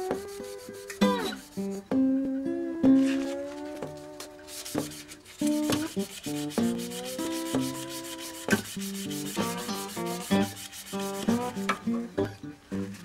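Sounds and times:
sandpaper rubbing spinning wood: 0:00.0 - 0:01.8, 0:04.4 - 0:11.6
picked acoustic guitar music: 0:00.0 - 0:13.0.

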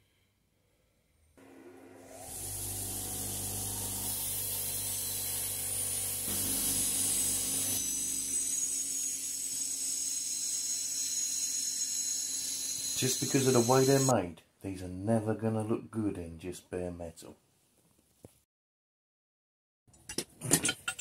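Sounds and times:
bench grinder motor hum: 0:01.4 - 0:14.1
wire wheel scratching paint: 0:12.8 - 0:14.1.

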